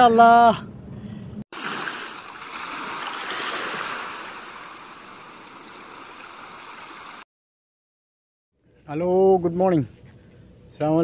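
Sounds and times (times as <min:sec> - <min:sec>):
waves washing onto stony shore: 0:01.6 - 0:07.2.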